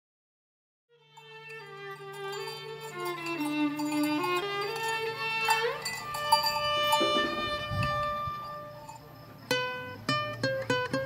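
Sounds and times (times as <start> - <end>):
violin long notes: 0.9 - 9.9
guitar picking single notes: 3.7 - 11.0.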